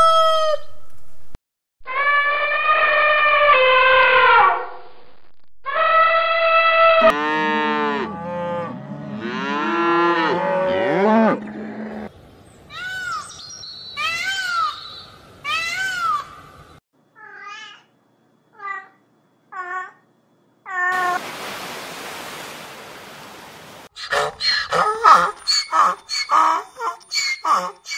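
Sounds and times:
elephant trumpeting: 1.9 - 4.7, 24.0 - 27.9
cattle mooing: 7.0 - 12.1
peacock calls: 12.7 - 16.6, 24.0 - 27.9.

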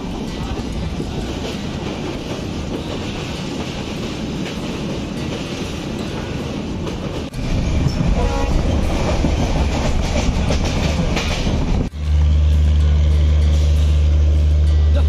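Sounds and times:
train wheels rumbling and rattling: 0.0 - 15.0
faint train horn: 8.1 - 8.8.

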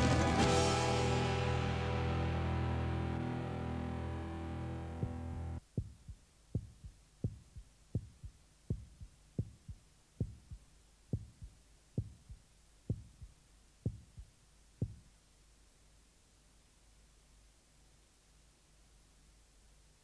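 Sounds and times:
heartbeat thumps: 4.9 - 15.1.

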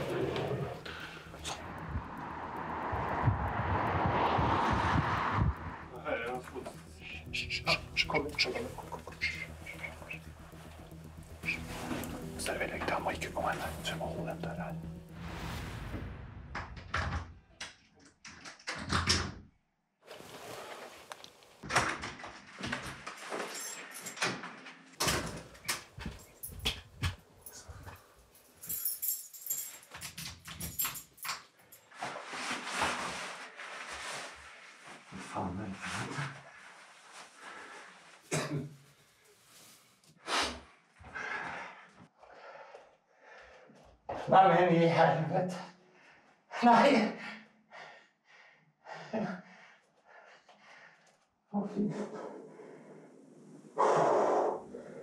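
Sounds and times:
sharp nasal snorts: 53.8 - 54.6.

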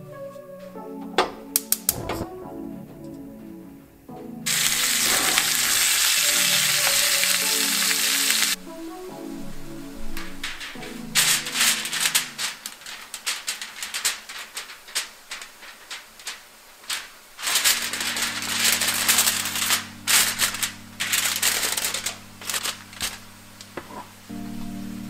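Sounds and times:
aluminium foil crinkling: 4.5 - 8.6, 10.0 - 24.3.

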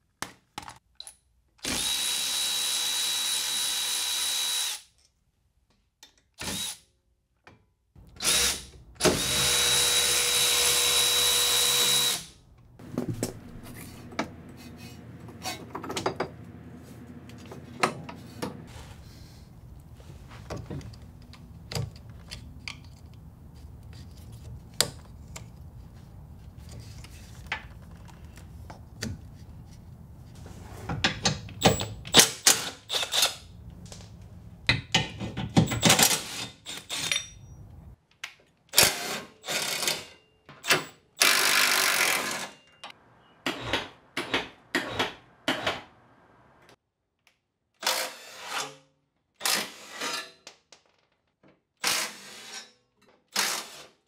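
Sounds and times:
power tool driving bolts: 8.1 - 12.4, 31.2 - 33.5, 35.4 - 37.4, 38.7 - 42.6
low hum: 12.8 - 19.8
clicks and knocks of parts: 20.5 - 25.6.

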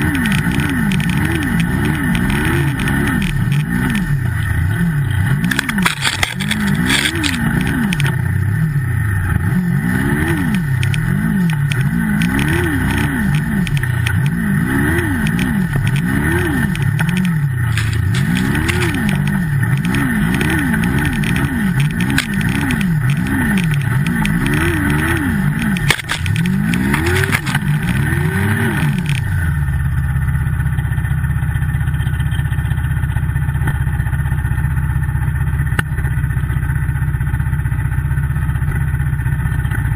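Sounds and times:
snowmobile engine revving: 0.0 - 29.6
engine idling: 0.0 - 39.9.

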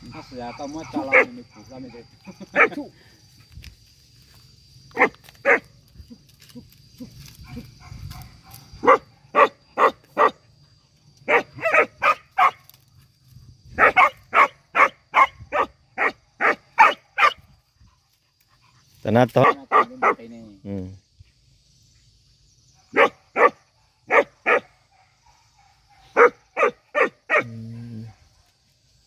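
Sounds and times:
dog barking: 0.1 - 2.8, 4.9 - 5.7, 7.5 - 10.4, 11.2 - 12.6, 13.8 - 17.4, 19.4 - 20.2, 22.8 - 28.5.

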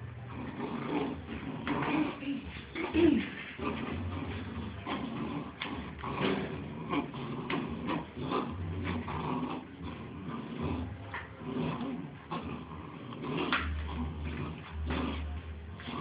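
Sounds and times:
puppies growling: 0.0 - 16.0
puppies scuffling: 0.0 - 16.0.

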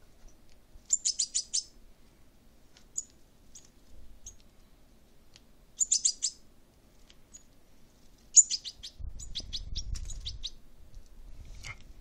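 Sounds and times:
bird chick begging chirps: 0.9 - 1.8, 5.8 - 6.4, 8.4 - 10.6.

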